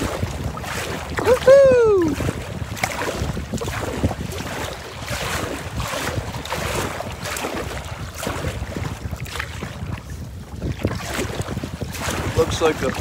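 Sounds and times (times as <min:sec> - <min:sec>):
strong wind buffeting microphone: 0:00.0 - 0:13.0
water slapping against kayak hull: 0:00.0 - 0:13.0.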